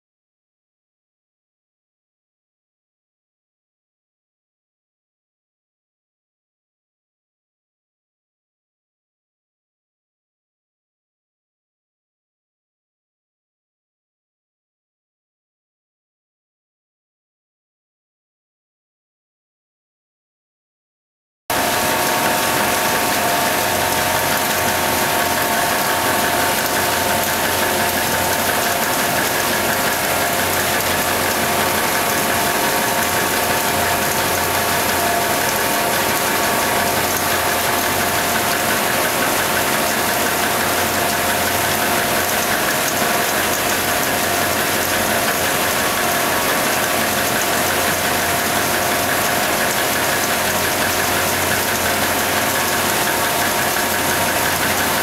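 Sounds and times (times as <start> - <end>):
paper machine running with whine: 21.5 - 55.0.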